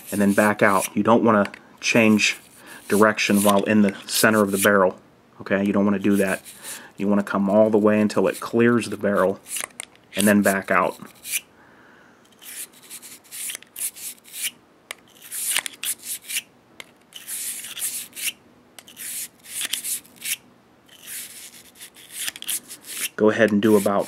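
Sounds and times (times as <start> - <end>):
bore brush scrubbing gun barrel: 0.0 - 1.0, 1.9 - 4.8, 5.9 - 9.6, 18.9 - 24.0.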